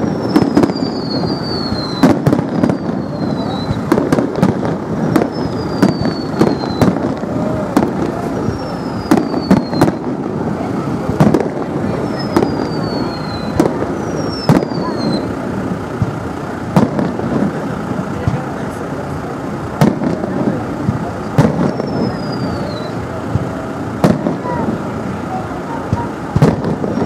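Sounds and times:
high descending firework whistles: 0.0s - 10.2s, 11.8s - 15.4s, 21.2s - 23.1s
firework shells bursting: 0.0s - 18.6s, 19.6s - 25.0s, 25.8s - 27.0s.

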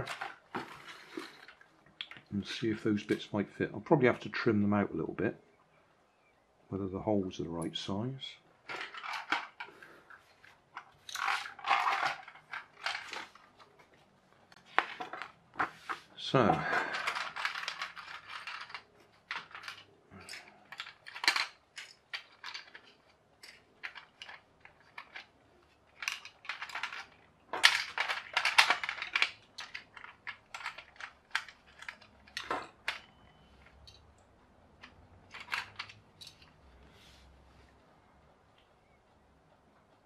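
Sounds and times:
plastic parts clicking and clattering: 0.0s - 3.3s, 8.6s - 36.7s.

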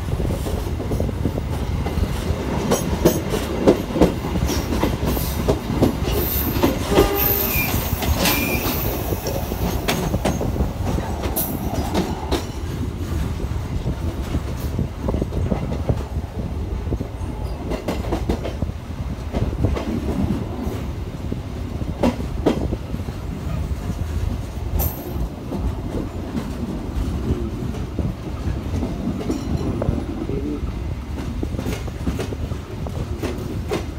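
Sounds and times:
train wheels rumbling on rails: 0.0s - 33.9s
high-pitched wheel squeals: 6.2s - 9.0s.

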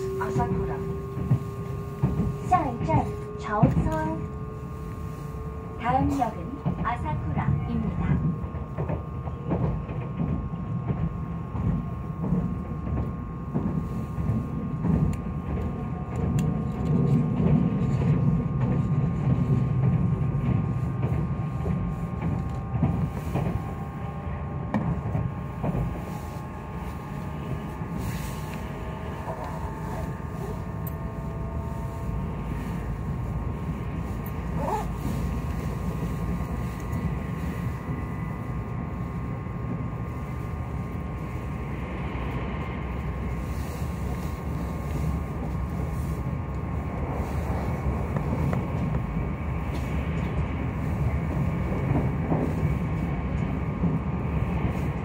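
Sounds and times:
train wheels rumbling on rail: 0.0s - 55.0s
gliding tones from running gear: 24.9s - 41.5s.

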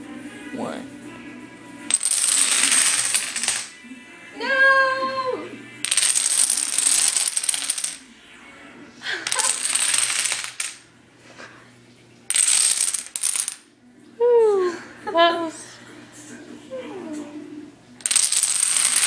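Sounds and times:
dominoes toppling and clicking: 1.9s - 3.7s, 5.8s - 8.0s, 9.2s - 10.8s, 12.3s - 13.6s, 18.0s - 19.0s.

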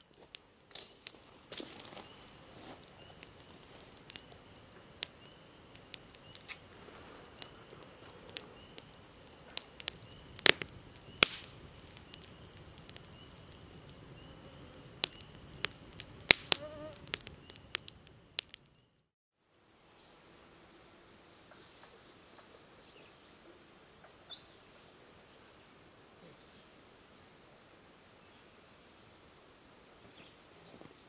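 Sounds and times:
campfire crackling and popping: 0.0s - 19.1s
faint high chirp: 23.7s - 25.0s.

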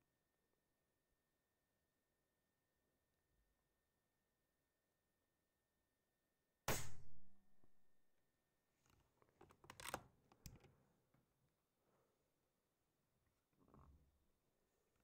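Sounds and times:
air rifle shot: 6.7s - 7.3s
rifle handling clicks and knocks: 8.9s - 10.7s.

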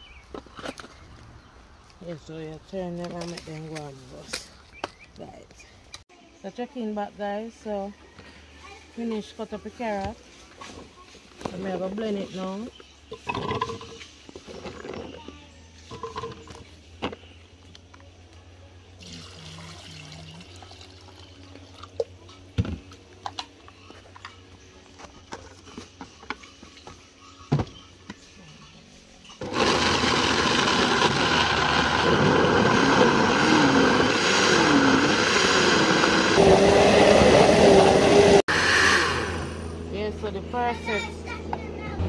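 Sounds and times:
blender whirring: 29.4s - 40.0s.

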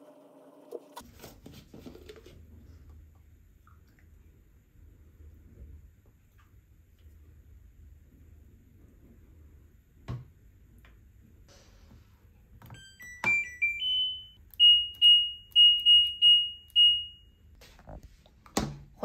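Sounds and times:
rising electronic tune: 12.8s - 14.4s
high-pitched beeps: 12.8s - 17.2s.

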